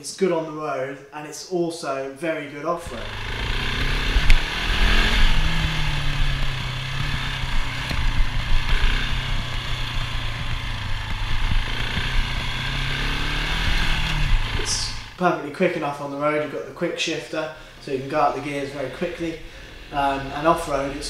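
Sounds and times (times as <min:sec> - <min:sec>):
motorcycle engine running: 0:02.8 - 0:15.3, 0:17.6 - 0:21.0.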